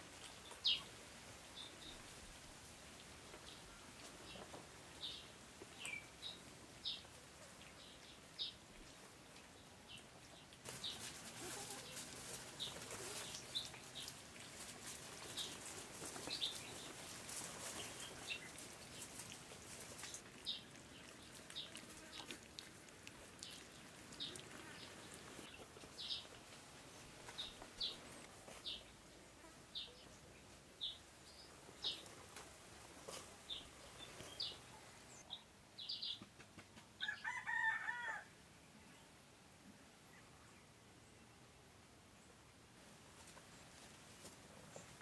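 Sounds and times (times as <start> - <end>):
puppies lapping food: 10.1 - 28.5.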